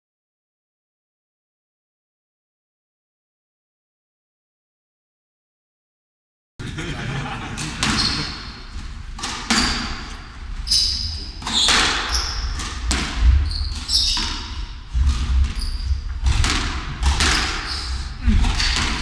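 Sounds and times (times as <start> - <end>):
sneakers squeaking on wooden floor: 7.6 - 19.0
squash ball cracking off racquets: 7.6 - 19.0.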